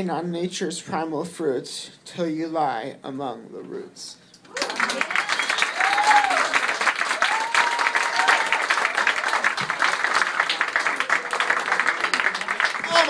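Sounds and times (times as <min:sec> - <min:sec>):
person whooping: 0:04.5 - 0:06.6, 0:07.2 - 0:08.9
audience applause: 0:04.5 - 0:13.0.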